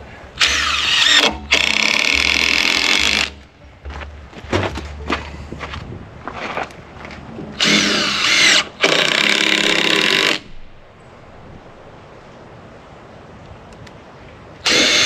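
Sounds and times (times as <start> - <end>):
cordless drill driving screws: 0.4 - 3.4, 7.6 - 10.5, 14.6 - 15.0.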